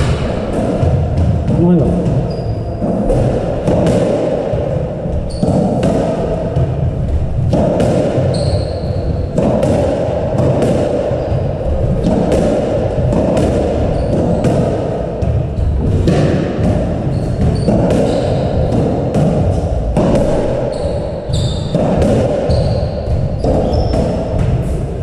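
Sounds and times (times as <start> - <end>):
constant background hum: 0.0 - 25.0
shoes squeaking on wooden floor: 1.5 - 2.8, 8.3 - 9.2, 13.9 - 14.4, 17.1 - 18.7, 20.7 - 21.8, 22.5 - 24.3
squash ball cracking off rackets: 7.4 - 24.8.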